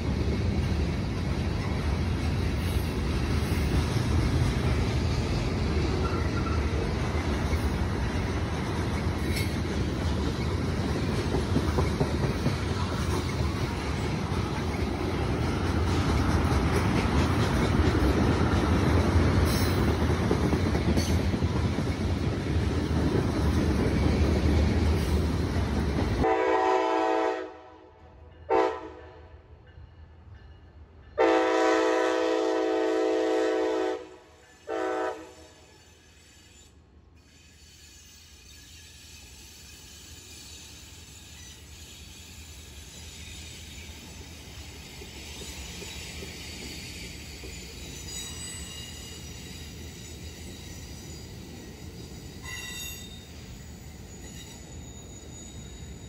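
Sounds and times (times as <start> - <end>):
rail joints clickety-clack: 0.0 - 27.4, 28.0 - 56.0
freight train wheels rumbling: 0.0 - 56.0
locomotive horn blasts: 26.2 - 27.9, 28.5 - 29.2, 31.2 - 35.5.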